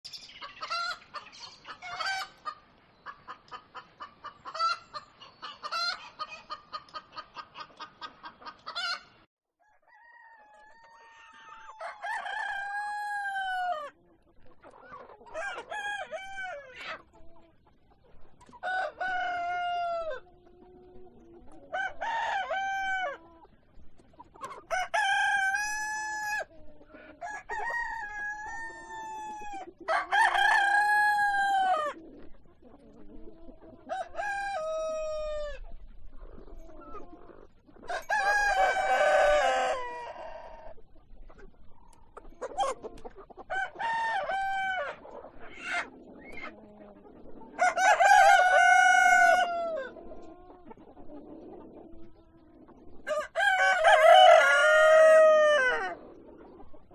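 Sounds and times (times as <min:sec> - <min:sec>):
chickens clucking: 0:00.1 - 0:56.9
rooster crowing: 0:09.6 - 0:13.9, 0:47.6 - 0:49.9, 0:53.1 - 0:56.0.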